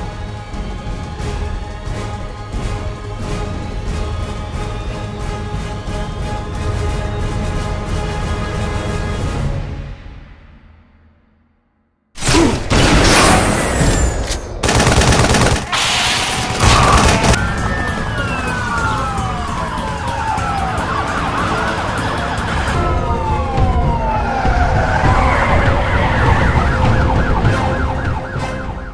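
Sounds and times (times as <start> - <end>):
police siren wailing: 15.3 - 28.9
long falling tones: 16.4 - 28.6.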